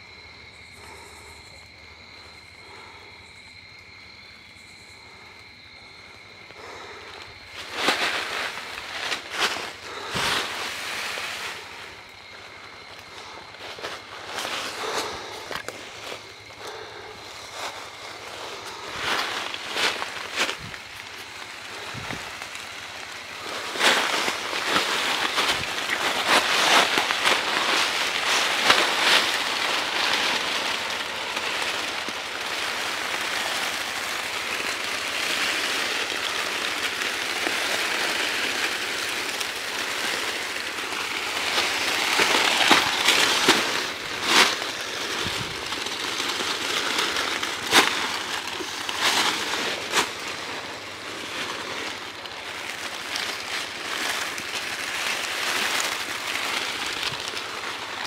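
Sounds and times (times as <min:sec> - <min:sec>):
dry leaves rustling and crunching: 0:05.8 - 0:58.0
sharp cracks: 0:18.5 - 0:50.6.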